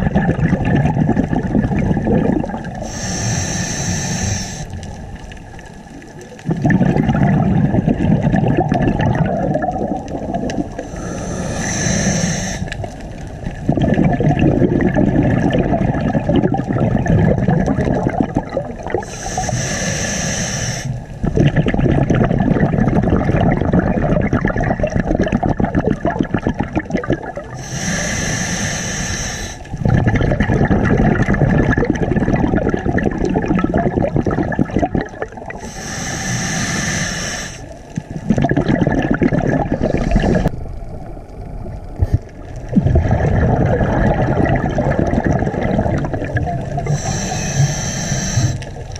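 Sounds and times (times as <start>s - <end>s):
exhaled air bubbling underwater: 0.0s - 48.9s
regulator inhale hiss: 2.8s - 4.9s, 10.8s - 13.0s, 19.0s - 21.1s, 27.5s - 29.7s, 35.6s - 37.8s, 39.8s - 40.6s, 46.8s - 48.9s.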